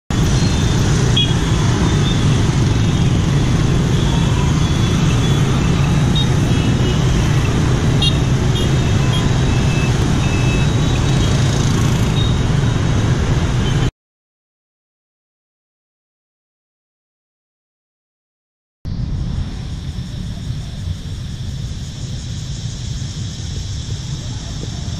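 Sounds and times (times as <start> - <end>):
rumble of scooter engines: 0.1 - 13.9, 18.9 - 24.9.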